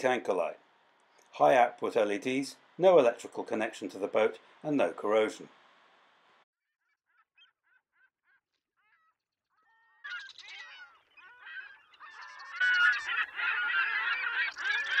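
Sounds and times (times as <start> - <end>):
gulls calling: 10.0 - 15.0.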